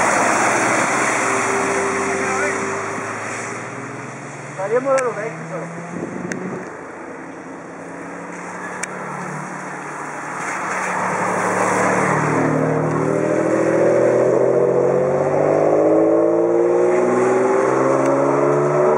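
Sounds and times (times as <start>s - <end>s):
tyres hissing on wet road: 0.0s - 5.8s, 7.8s - 13.8s
sports car engine accelerating: 0.0s - 18.9s.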